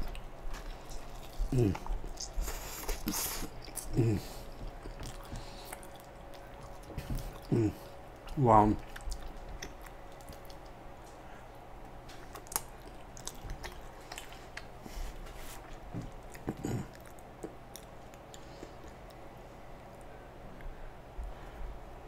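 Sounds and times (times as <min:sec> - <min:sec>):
chewing food: 0:00.0 - 0:21.5
wet mouth clicks: 0:01.0 - 0:02.4
low vocal sound: 0:01.4 - 0:02.0, 0:03.8 - 0:04.4, 0:07.1 - 0:07.9.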